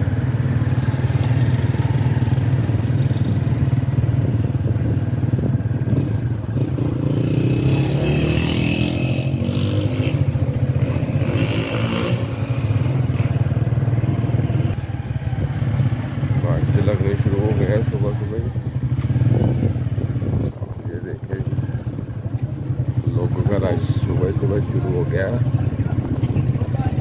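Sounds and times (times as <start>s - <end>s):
motorcycle engine rumble: 0.0s - 27.0s
vehicles passing: 0.0s - 27.0s
wind buffeting microphone: 3.2s - 6.9s, 14.8s - 24.2s, 25.4s - 27.0s.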